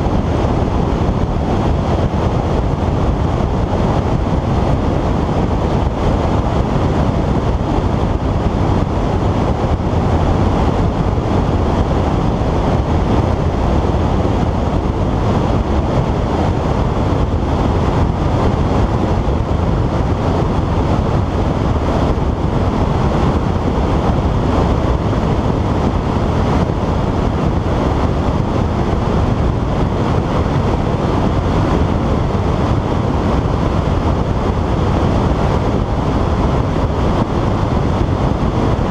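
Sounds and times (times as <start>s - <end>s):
wind buffeting microphone: 0.0s - 38.9s.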